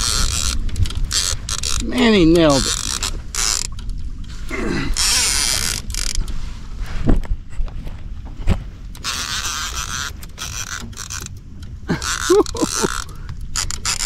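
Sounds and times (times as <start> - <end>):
fishing reel drag buzzing: 0.0 - 3.8, 5.0 - 6.2, 9.0 - 14.0.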